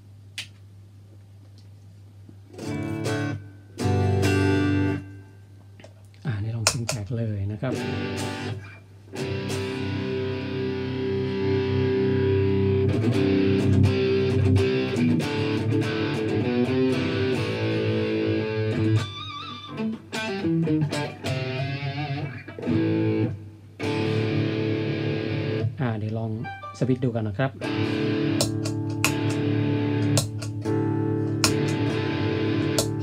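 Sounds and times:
distorted electric guitar chords: 0:02.5 - 0:05.6, 0:07.6 - 0:26.9, 0:27.5 - 0:33.0
electric guitar bent note: 0:27.6 - 0:33.0.

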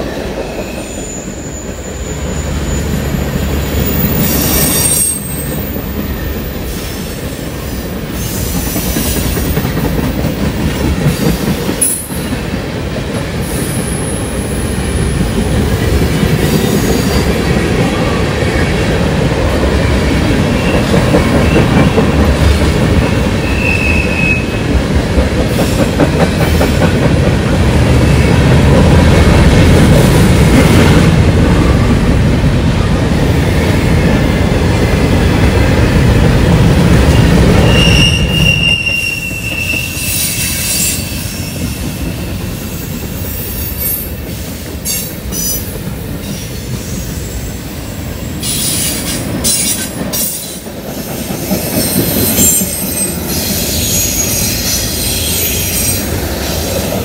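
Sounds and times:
high wheel squeals: 0:00.6 - 0:06.3, 0:37.6 - 0:41.7, 0:51.8 - 0:56.1
freight train wheels clattering: 0:02.8 - 0:47.2, 0:48.3 - 0:57.0.

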